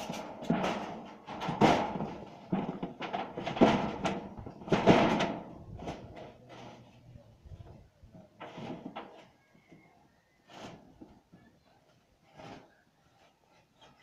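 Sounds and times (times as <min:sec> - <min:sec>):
metal roofing sheet rattling: 0:00.0 - 0:07.0.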